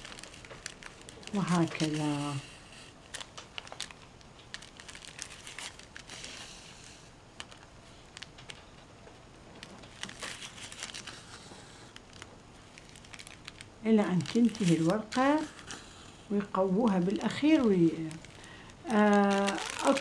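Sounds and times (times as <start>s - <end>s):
cloth rustling: 0.0s - 6.6s, 9.6s - 15.8s, 17.5s - 20.0s.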